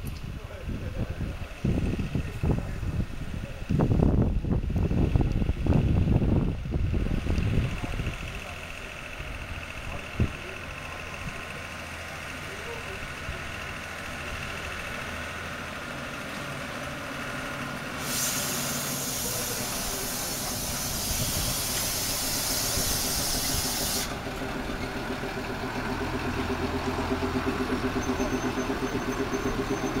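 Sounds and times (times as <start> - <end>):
diesel locomotive engine running: 0.0 - 30.0
loud hiss: 17.9 - 24.2.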